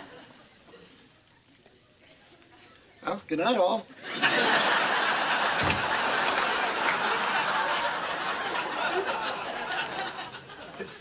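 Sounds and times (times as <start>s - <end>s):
studio audience laughing: 4.0s - 11.0s.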